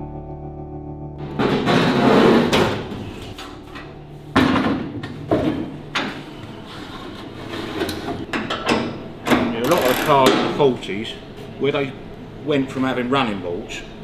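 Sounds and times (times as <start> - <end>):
sheet metal rattling and scraping: 1.3 - 3.9.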